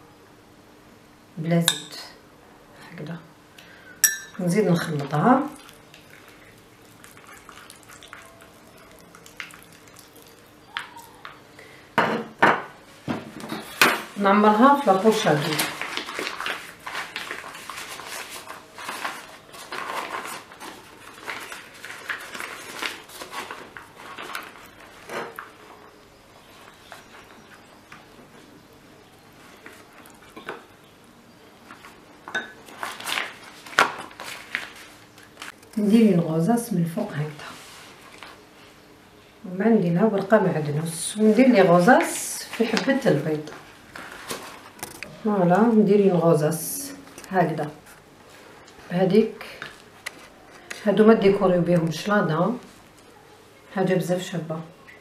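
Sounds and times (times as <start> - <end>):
utensils clinking against dishes: 1.7 - 2.0, 4.0 - 4.4.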